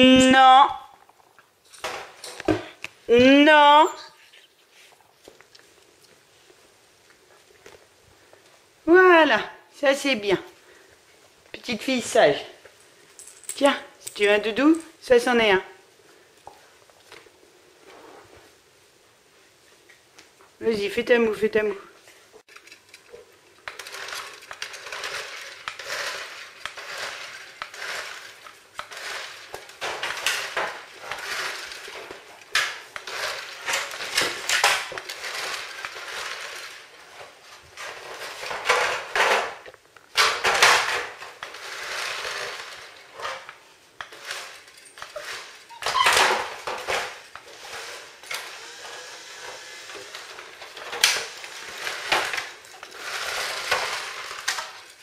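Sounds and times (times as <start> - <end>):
plastic toy car rattling on tiles: 22.5 - 55.0.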